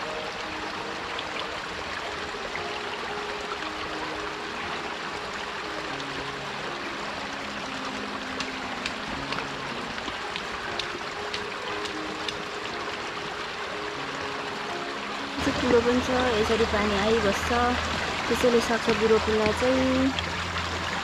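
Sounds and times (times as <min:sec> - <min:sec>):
water trickling in drain channel: 0:07.5 - 0:21.0.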